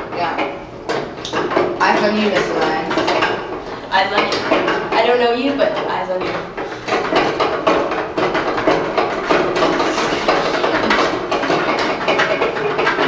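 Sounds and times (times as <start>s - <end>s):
roll clattering in metal dispenser: 4.0s - 13.0s.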